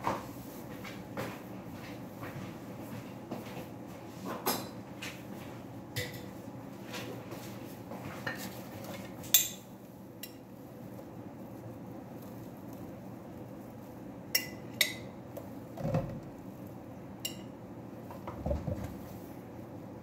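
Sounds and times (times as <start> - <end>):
steady low hum: 5.4 - 20.0.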